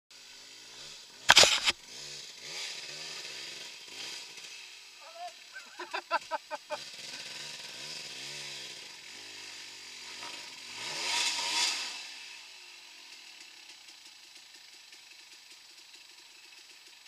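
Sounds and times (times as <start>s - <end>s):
dirt bike engine revving: 0.4s - 12.5s.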